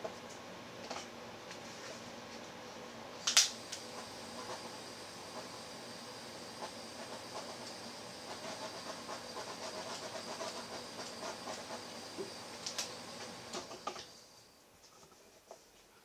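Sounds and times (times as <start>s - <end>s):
butane torch hissing: 3.4s - 14.6s.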